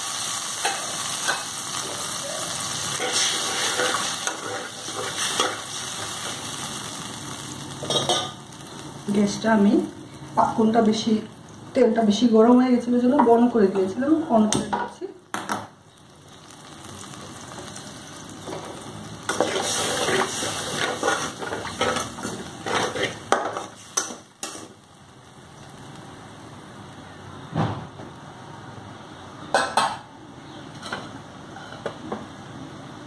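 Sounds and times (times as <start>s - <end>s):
oil sizzling in a pan: 0.0s - 27.2s
spatula scraping a pan: 2.9s - 6.5s, 18.6s - 24.7s.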